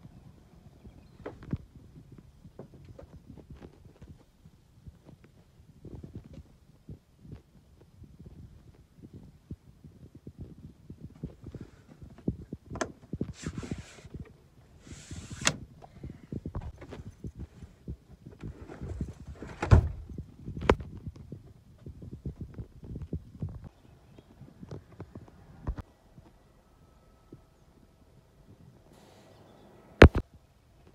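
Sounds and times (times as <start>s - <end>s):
short hissing rustles: 28.9s - 29.4s.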